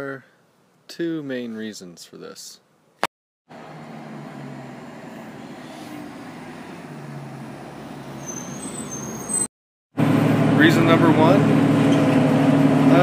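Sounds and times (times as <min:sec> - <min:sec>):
bus engine humming: 0:03.5 - 0:09.4
bus brakes squealing: 0:03.8 - 0:09.5.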